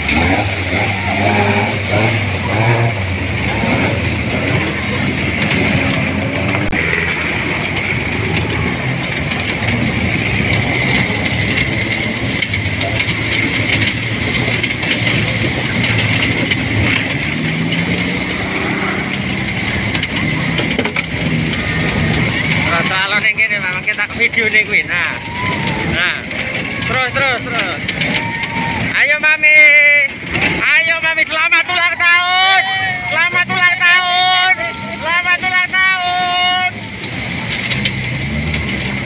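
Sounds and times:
off-road vehicle engines: 0:00.0 - 0:39.0
rumble of road noise: 0:00.0 - 0:39.0.

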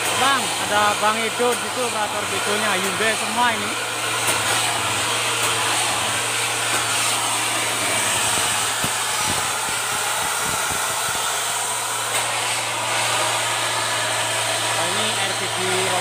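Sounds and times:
heavy machinery drone and hiss: 0:00.0 - 0:16.0.

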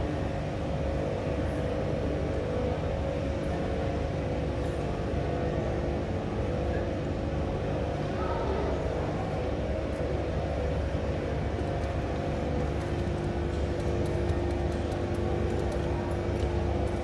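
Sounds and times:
faint hum: 0:00.0 - 0:17.0.

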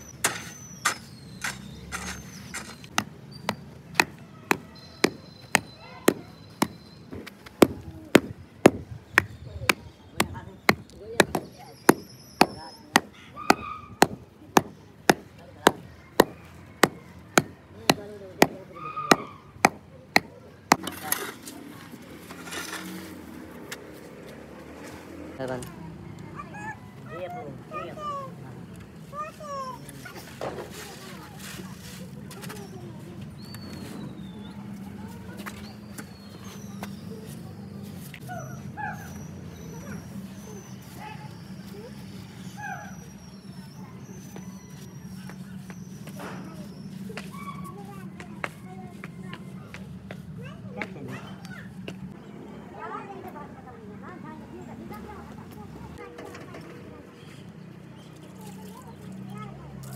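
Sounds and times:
spade scraping through soil: 0:00.2 - 0:03.0, 0:20.7 - 0:23.3
wooden beater pounding soil: 0:00.2 - 0:21.4
animal whining calls: 0:12.0 - 0:14.0.

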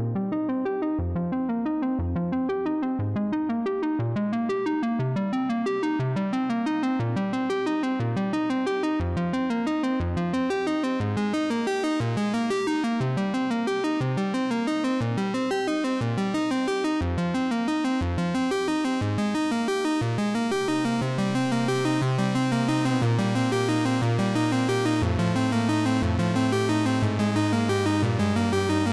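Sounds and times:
synthesizer keyboard notes: 0:10.5 - 0:28.9.

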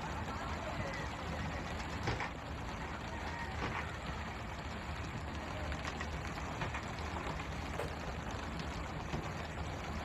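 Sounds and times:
boat engine rumble: 0:00.0 - 0:10.0.

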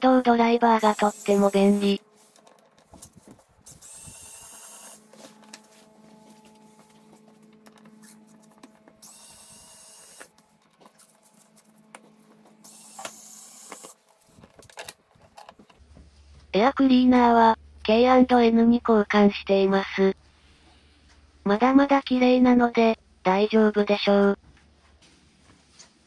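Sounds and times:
electric screwdriver whirring: 0:00.8 - 0:02.0, 0:03.7 - 0:05.0, 0:09.0 - 0:10.3, 0:12.6 - 0:14.0.

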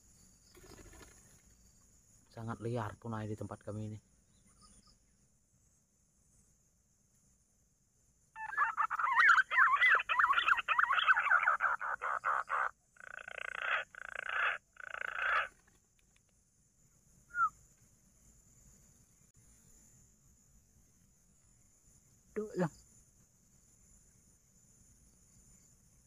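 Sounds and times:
person whistling bird call: 0:17.3 - 0:17.6.

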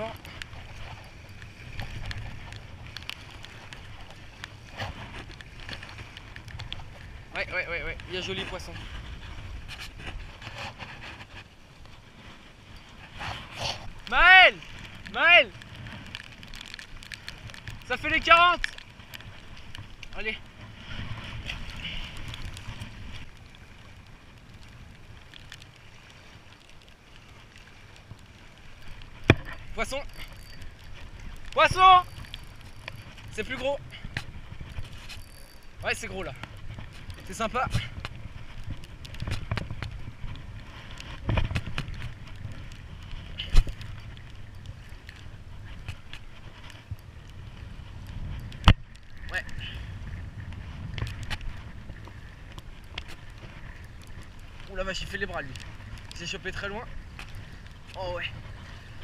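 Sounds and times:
wind on microphone: 0:00.0 - 0:25.3, 0:27.7 - 0:59.0
waves lapping on pebbles: 0:00.0 - 0:59.0
fishing reel clicks: 0:30.0 - 0:31.0, 0:32.0 - 0:33.1, 0:34.7 - 0:36.1.

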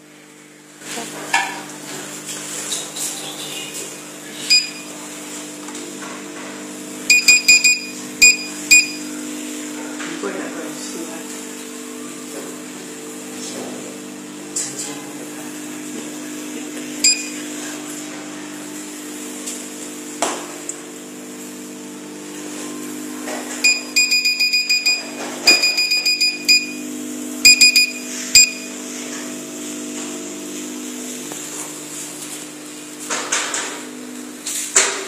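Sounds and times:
machine low hum: 0:00.0 - 0:34.6
touchscreen beeps: 0:04.5 - 0:04.9, 0:07.1 - 0:09.0, 0:17.0 - 0:17.4, 0:23.6 - 0:26.8, 0:27.4 - 0:28.7.

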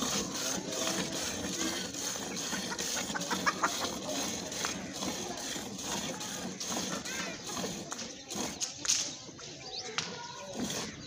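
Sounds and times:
milk squirting into metal bucket: 0:00.0 - 0:08.6
chicken clucking: 0:02.3 - 0:05.2.

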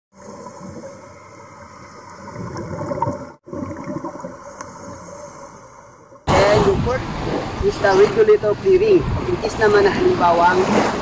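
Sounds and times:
underwater bubbles gurgling: 0:00.2 - 0:05.6.

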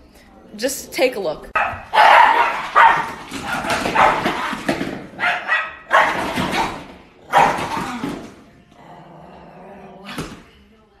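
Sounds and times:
small dog barking harshly: 0:01.6 - 0:03.2, 0:03.9 - 0:04.5, 0:05.2 - 0:06.4, 0:07.3 - 0:07.7.

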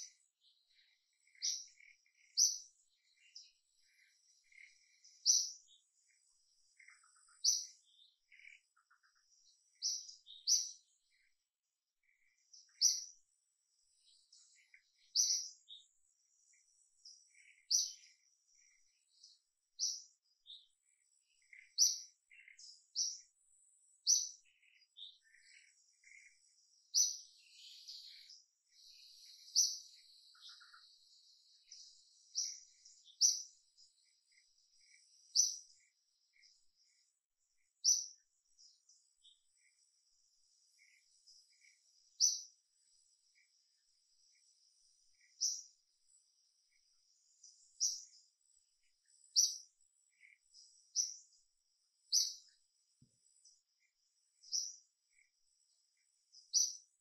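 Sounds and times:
birds chirping: 0:00.0 - 0:57.0
faint insect hum: 0:00.0 - 0:57.0.

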